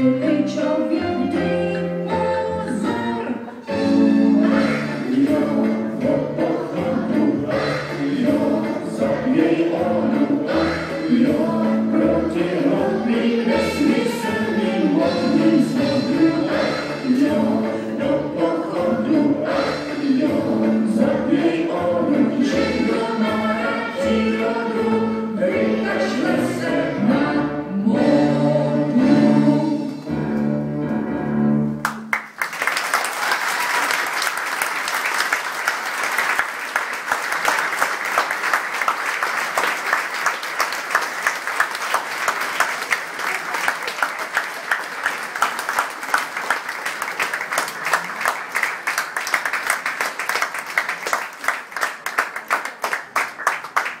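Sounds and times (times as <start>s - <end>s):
song with singing: 0.0s - 30.5s
audience applauding: 31.8s - 54.0s.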